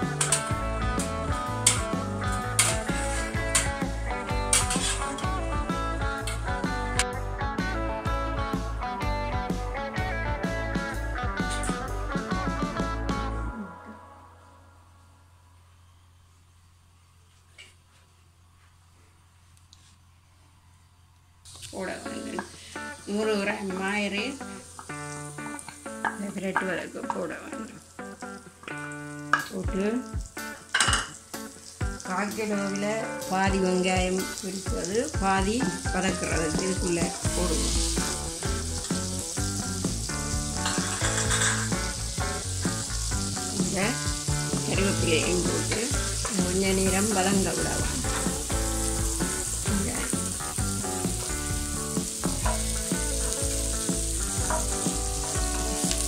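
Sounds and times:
margarine sizzling in a pot: 0.0s - 13.3s, 21.4s - 56.0s
instrumental background music: 0.0s - 15.2s, 21.5s - 56.0s
spatula knocking and scraping pan: 1.6s - 3.8s, 4.5s - 5.2s, 40.6s - 41.9s, 54.4s - 56.0s
wooden spatula scraping a pot: 4.5s - 5.1s.

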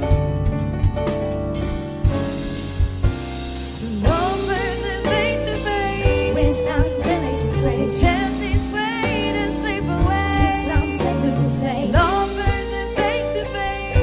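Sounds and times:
live band playing: 0.0s - 14.0s
women singing with vibrato: 3.8s - 14.0s.

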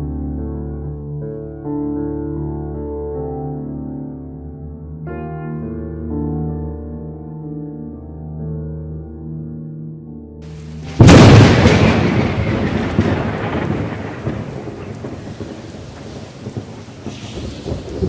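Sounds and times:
steady rain: 10.4s - 18.0s
thunderclap rumbling: 10.8s - 18.0s.

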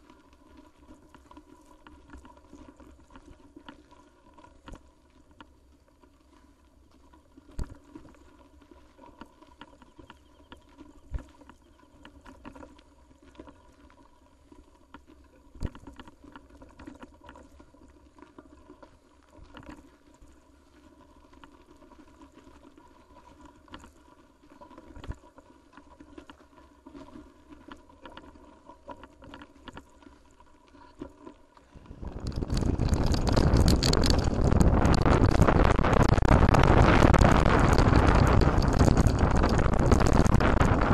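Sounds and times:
wind rushing on microphone: 31.8s - 40.9s.

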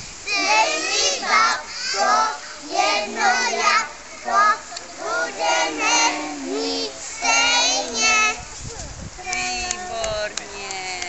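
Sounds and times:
young children singing: 0.2s - 8.5s.

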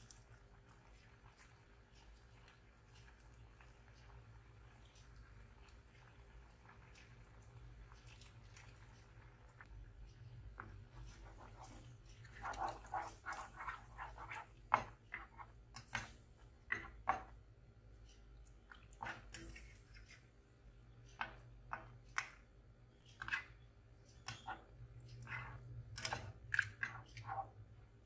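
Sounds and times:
spatula stirring thick sauce: 0.0s - 20.4s, 24.2s - 27.7s
spatula scraping saucepan: 10.6s - 16.1s, 24.2s - 27.5s.

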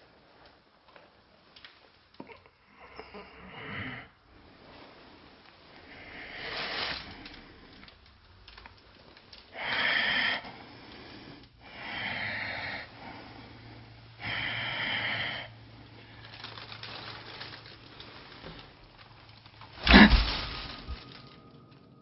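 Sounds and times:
faint low hum: 0.0s - 22.0s
breathy exhales: 9.4s - 17.4s, 19.8s - 21.4s.

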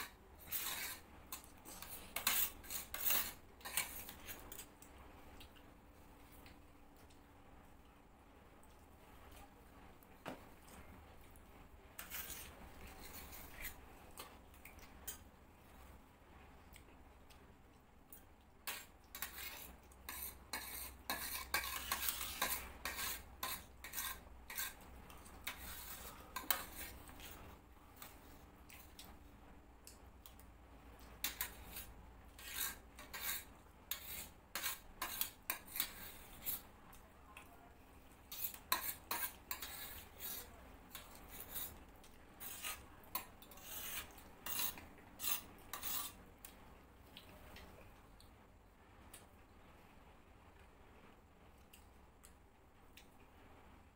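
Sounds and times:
spoons scraping steel plates: 0.0s - 4.4s, 18.7s - 24.8s, 25.4s - 27.0s, 38.3s - 41.7s, 42.4s - 46.2s.

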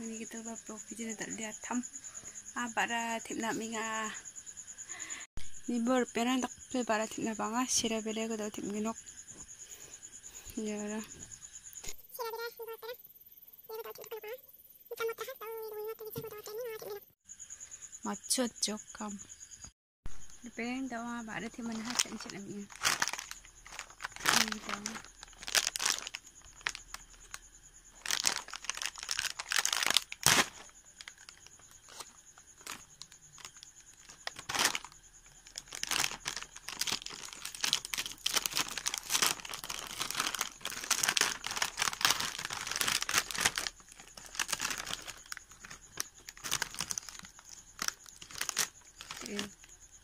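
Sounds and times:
snack bag crinkling: 21.7s - 27.4s, 28.0s - 49.5s.

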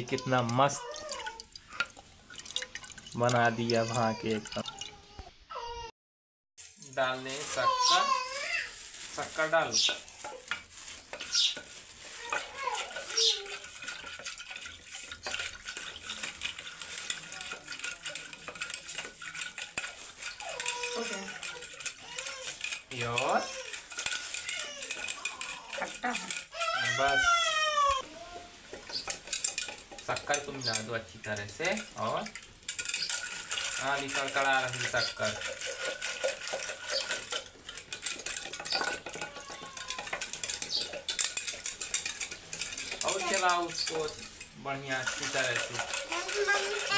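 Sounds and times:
churning stick rattling in metal pot: 0.0s - 5.0s, 6.6s - 46.9s
swishing stir in curd: 6.6s - 27.0s, 28.5s - 38.8s.

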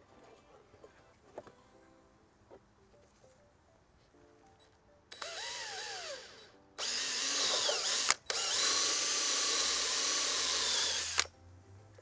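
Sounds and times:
cordless drill boring plastic: 5.1s - 11.3s.

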